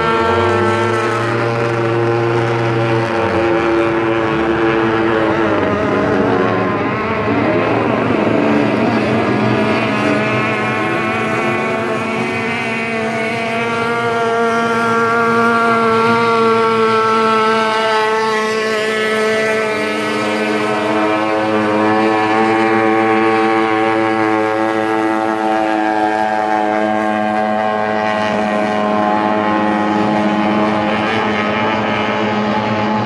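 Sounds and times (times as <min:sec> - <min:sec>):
high-revving boat engines whining: 0:00.0 - 0:33.0.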